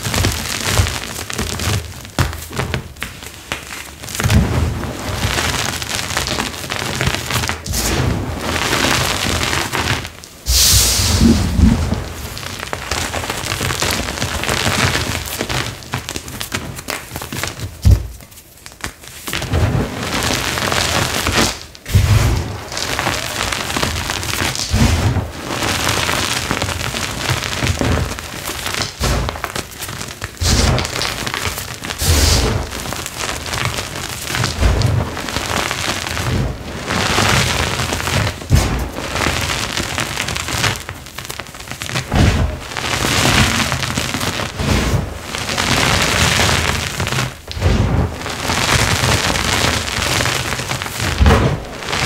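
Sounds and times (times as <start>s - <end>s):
hands crushing chalk: 0.0s - 8.0s, 9.0s - 19.8s, 20.4s - 36.5s.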